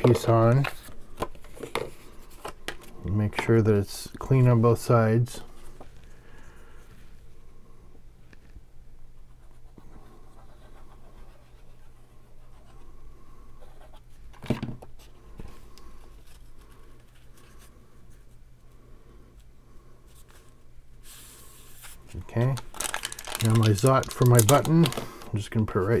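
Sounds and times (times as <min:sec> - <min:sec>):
steady low hum: 0:00.0 - 0:26.0
cardstock rustling and scratching: 0:21.1 - 0:25.1.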